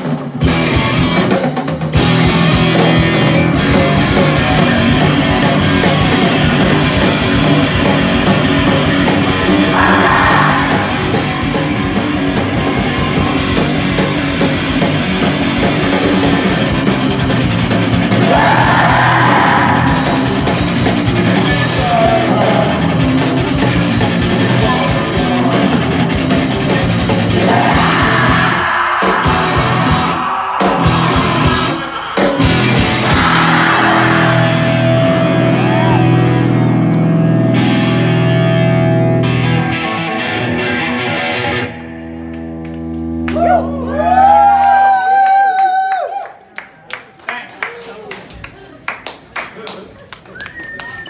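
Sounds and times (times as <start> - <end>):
drum kit: 0.0 - 41.4
bass guitar: 0.0 - 44.9
electric guitar: 0.0 - 45.4
person yelling into a microphone: 9.6 - 11.4.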